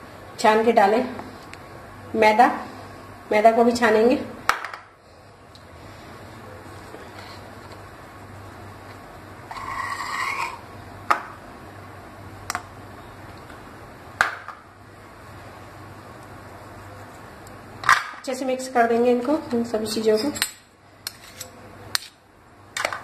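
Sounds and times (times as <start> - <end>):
faint steady hum: 0.0 - 23.0
sieve scraping rasp: 9.5 - 10.6.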